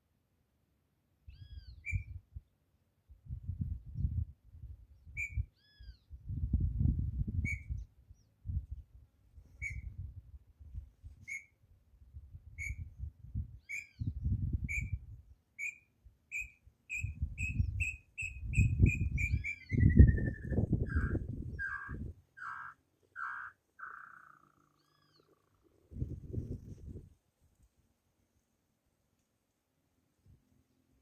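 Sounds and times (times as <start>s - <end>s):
second bird arched calls: 20.9s - 25.5s.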